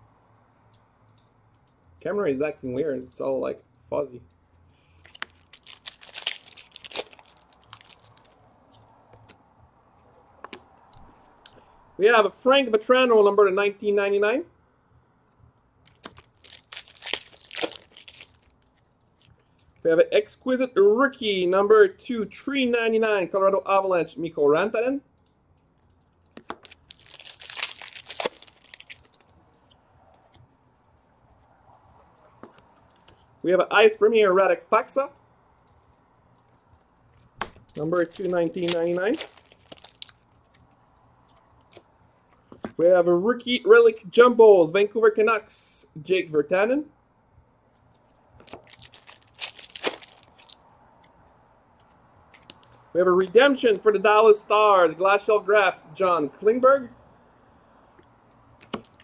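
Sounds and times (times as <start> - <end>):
cards rustling: 4.9 - 11.4, 15.9 - 19.4, 25.8 - 31.5, 37.1 - 42.8, 47.9 - 51.2, 51.8 - 52.8, 58.6 - 59.0
foil wrapper tearing and crinkling: 5.1 - 8.4, 15.9 - 19.3, 26.4 - 30.3, 37.4 - 40.6, 48.4 - 50.6, 58.6 - 59.0.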